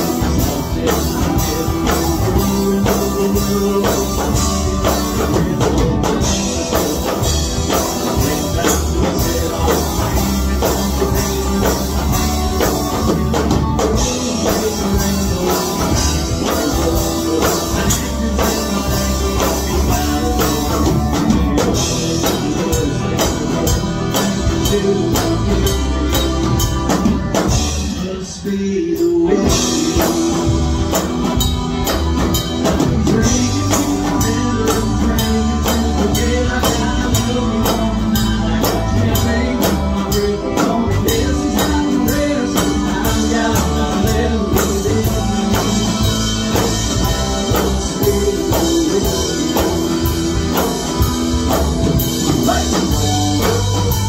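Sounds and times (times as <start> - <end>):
live country-rock band: 0.0 - 54.0.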